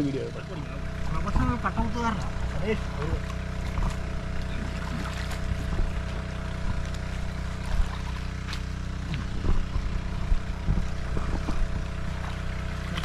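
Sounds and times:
water pump engine running: 0.0s - 13.0s.

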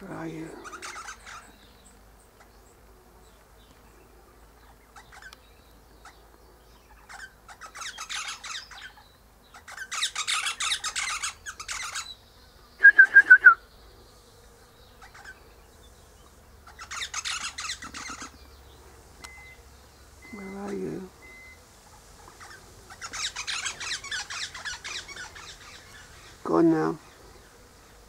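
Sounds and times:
parrot chattering: 0.6s - 1.5s, 7.0s - 12.0s, 16.6s - 18.4s, 22.4s - 26.3s.

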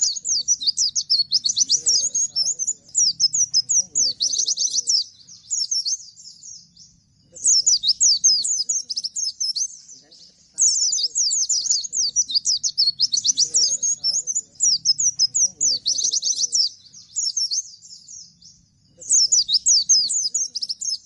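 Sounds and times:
bird singing rapid chirps: 0.0s - 21.0s.

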